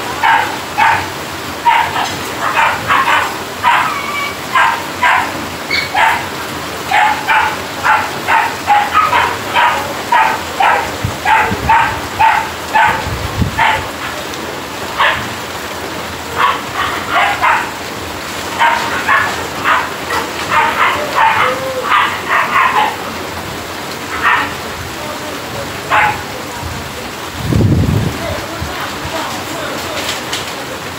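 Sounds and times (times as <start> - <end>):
steady rain falling: 0.0 - 30.9
dog barking: 0.1 - 14.1, 15.0 - 15.4, 16.3 - 17.8, 18.5 - 23.1, 24.1 - 24.6, 25.9 - 26.3.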